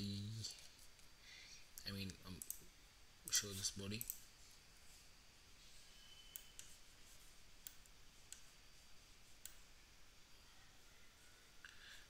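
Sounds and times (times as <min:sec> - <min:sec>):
computer mouse clicks: 0:02.0 - 0:02.7, 0:03.3 - 0:04.2, 0:06.3 - 0:06.8, 0:07.6 - 0:08.5, 0:09.4 - 0:09.7.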